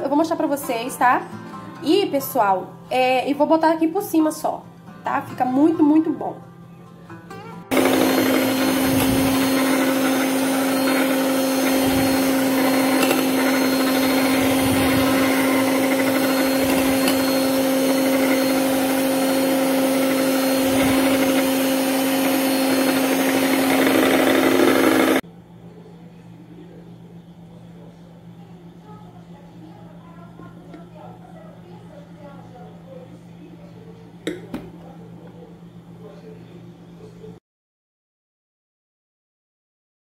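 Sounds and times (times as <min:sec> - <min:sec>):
electric mixer running: 0:07.7 - 0:25.2.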